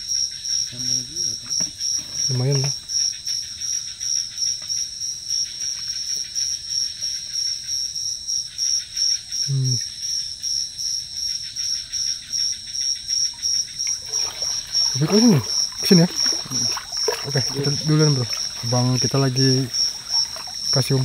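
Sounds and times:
insect chorus pulsing tone: 0:00.0 - 0:21.0
fast insect buzz: 0:13.0 - 0:21.0
low voice-like sound: 0:15.0 - 0:16.7.

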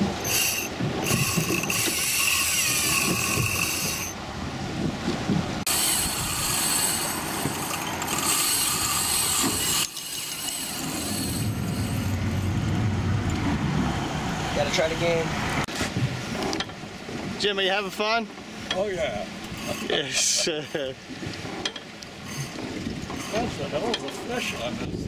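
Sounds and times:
fishing reel drag buzzing: 0:00.2 - 0:04.2, 0:05.7 - 0:12.2, 0:22.2 - 0:22.6.

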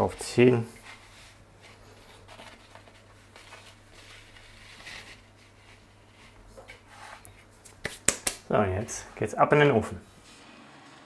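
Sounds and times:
hands rustling pizza on peel: 0:00.0 - 0:08.1.

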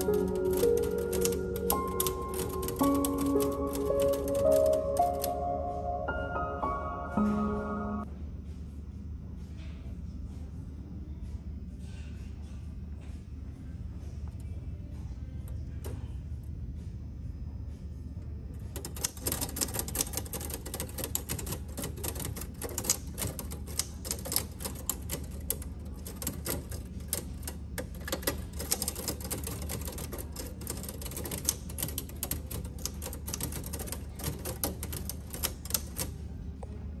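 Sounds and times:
typewriter keys clattering: 0:00.0 - 0:05.4, 0:18.7 - 0:36.2.

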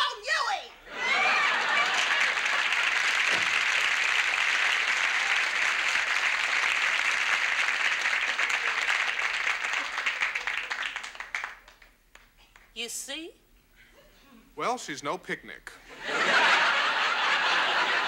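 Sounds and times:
audience applauding: 0:01.0 - 0:12.3.

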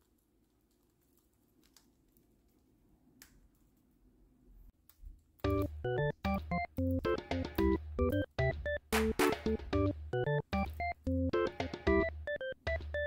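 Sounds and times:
keyboard music: 0:05.4 - 0:13.0.

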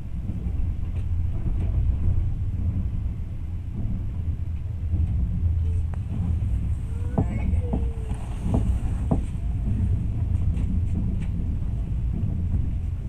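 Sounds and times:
train rumbling: 0:00.0 - 0:13.0
faint knocks: 0:03.8 - 0:13.0.

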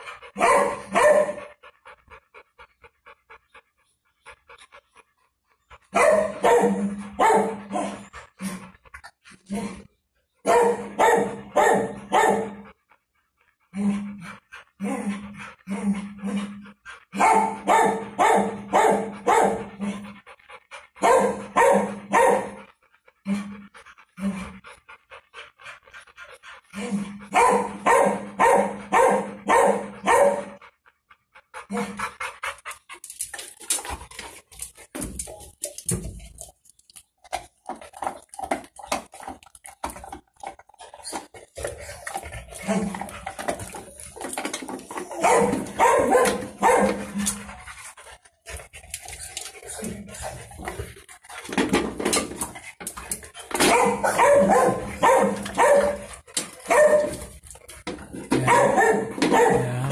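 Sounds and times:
dog panting hard: 0:00.0 - 0:59.4
clicking and snuffling: 0:31.7 - 0:59.6.

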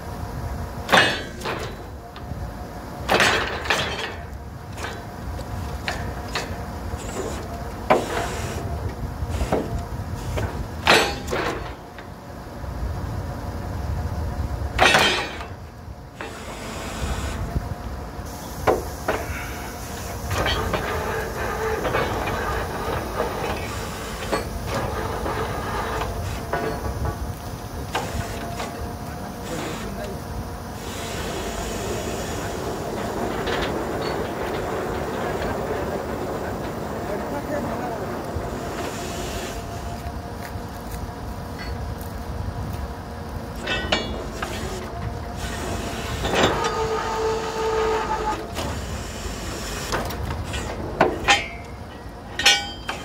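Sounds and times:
short loud hissing bursts: 0:30.7 - 0:32.8, 0:38.5 - 0:39.9.

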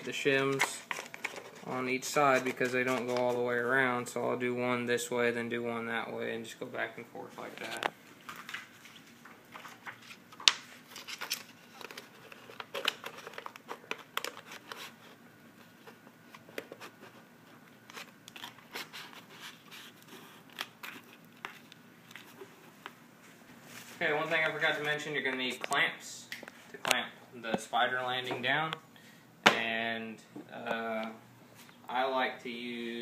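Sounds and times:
shims crinkling and clicking: 0:00.0 - 0:03.4, 0:07.4 - 0:23.0.

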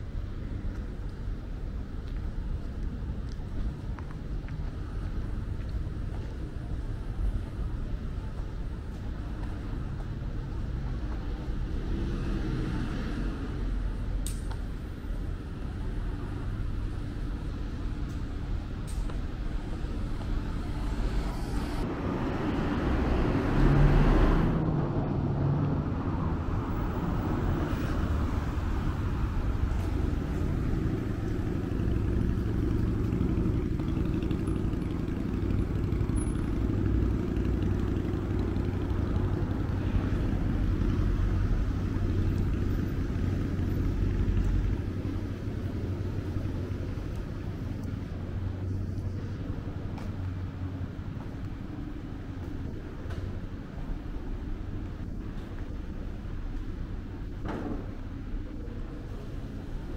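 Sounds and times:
road traffic hum: 0:00.0 - 0:59.9
vehicle passing close: 0:20.7 - 0:46.8.

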